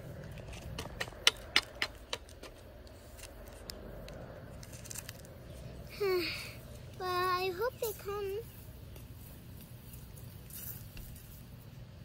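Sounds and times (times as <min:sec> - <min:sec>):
sharp clicks and crackles: 0:00.2 - 0:05.4.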